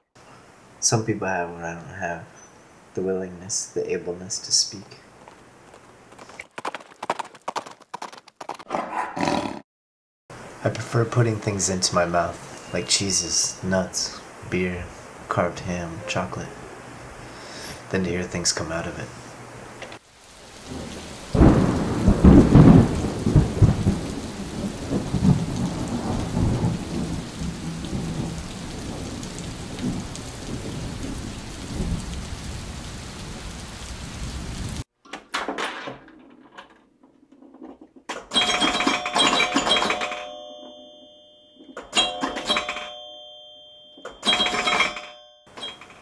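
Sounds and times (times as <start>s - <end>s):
heavy rain: 19.9s - 34.9s
rolling thunder: 20.5s - 34.8s
clatter with bell-like ringing: 38.3s - 46.0s.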